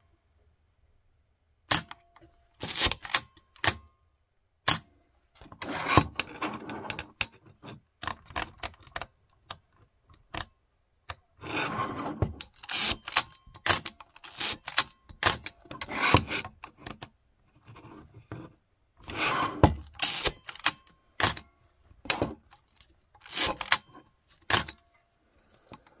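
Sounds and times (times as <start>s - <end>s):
film advance lever ratcheting: 2.6s - 3.8s, 12.4s - 15.5s, 19.9s - 21.4s, 22.4s - 24.8s
camera shutter clicks: 12.7s - 15.0s, 20.0s - 21.4s, 23.2s - 23.8s.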